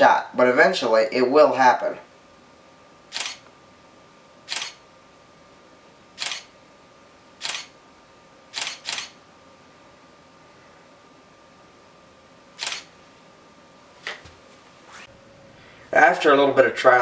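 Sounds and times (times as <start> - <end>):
camera shutter clicks: 3.1 - 3.4, 4.5 - 4.8, 6.2 - 6.5, 7.4 - 7.7, 8.5 - 9.2, 12.6 - 12.9.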